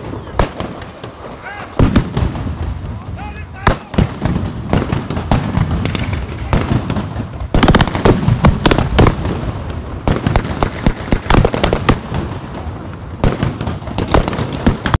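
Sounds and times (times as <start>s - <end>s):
rapid blank gunfire: 3.7s - 9.4s, 10.0s - 12.3s.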